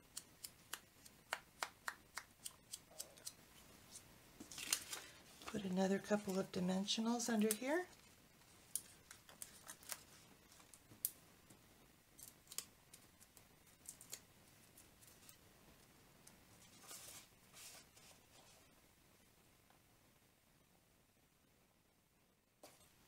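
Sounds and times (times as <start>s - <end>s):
soft paper rustle: 3.1s - 6.5s, 7.2s - 11.1s, 16.5s - 18.7s.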